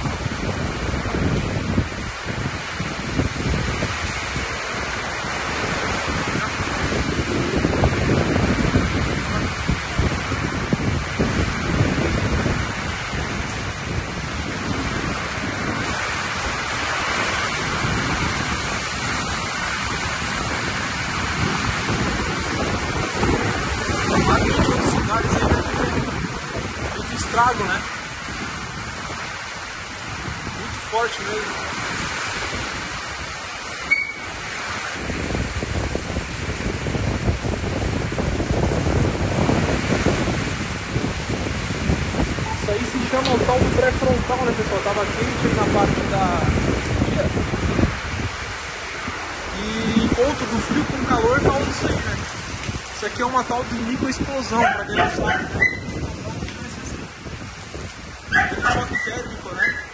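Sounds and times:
heavy rain hiss: 0.0s - 59.9s
wind buffeting microphone: 0.0s - 59.9s
person speaking: 42.4s - 47.4s, 49.4s - 52.3s, 52.9s - 57.0s, 58.6s - 59.9s.

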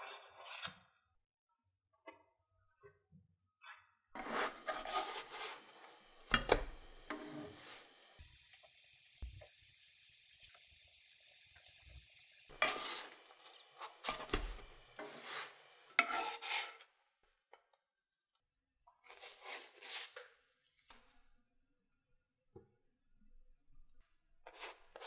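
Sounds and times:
spatula scraping frying pan: 4.2s - 8.3s, 9.9s - 16.9s.

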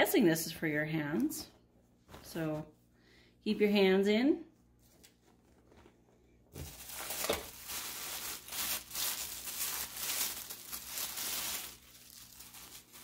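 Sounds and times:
plastic bag crinkling: 4.8s - 13.0s.

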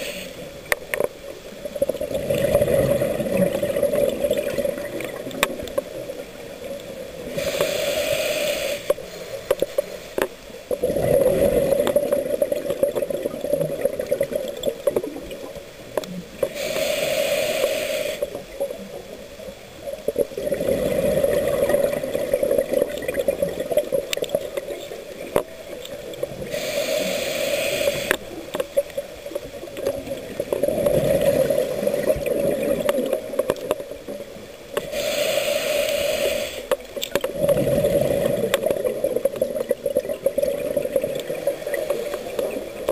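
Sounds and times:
regulator inhalation hiss: 0.0s - 0.5s, 7.2s - 9.4s, 16.5s - 18.4s, 26.4s - 28.4s, 34.8s - 36.8s
exhaled bubbles rushing: 1.6s - 6.2s, 10.8s - 15.5s, 20.2s - 25.4s, 29.7s - 33.8s, 37.2s - 42.9s.

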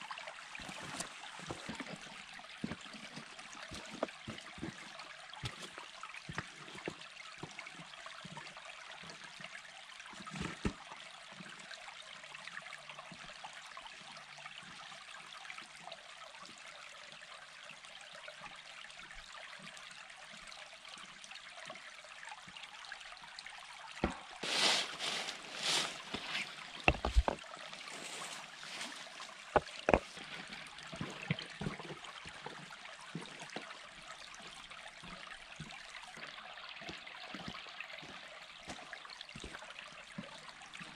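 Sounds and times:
creek trickling over stones: 0.0s - 40.9s
rustling: 24.0s - 31.2s.

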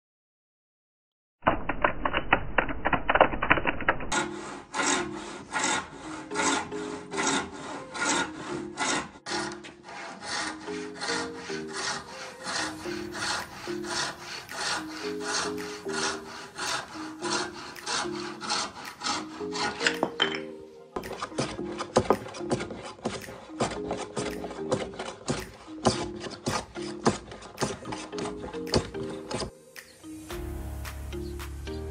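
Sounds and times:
hand plane shaving wood: 4.1s - 29.6s
hand saw cutting wood: 4.1s - 30.5s
music: 4.1s - 31.9s.

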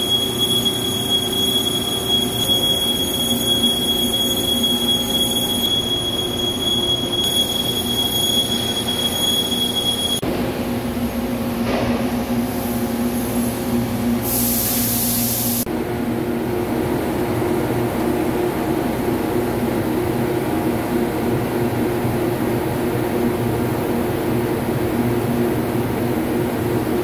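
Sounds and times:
loud hiss: 14.2s - 15.7s.

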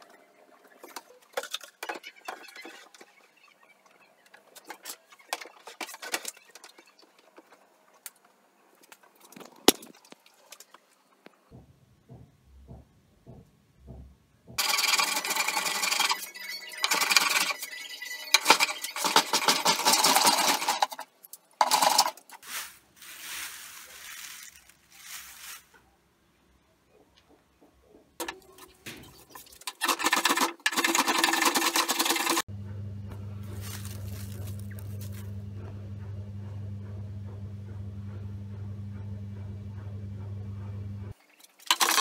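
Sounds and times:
wood shavings crackling and rustling: 21.6s - 26.0s, 33.4s - 35.4s
steady low hum: 32.5s - 41.2s.

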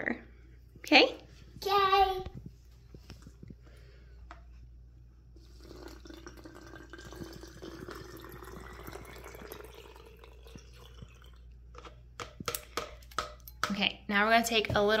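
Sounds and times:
water pouring into plastic bottle: 5.4s - 11.6s.

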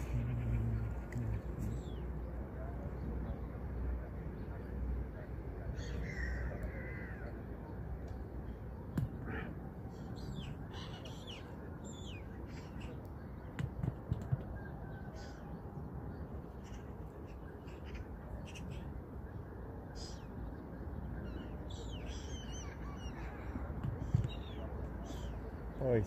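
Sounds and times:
birds calling: 0.0s - 3.1s, 8.1s - 19.1s, 19.8s - 26.0s.

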